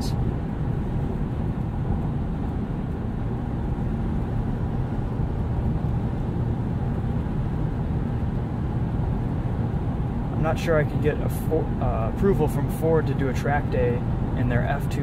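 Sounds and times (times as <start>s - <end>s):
engine tyre and wind rumble: 0.0s - 15.0s.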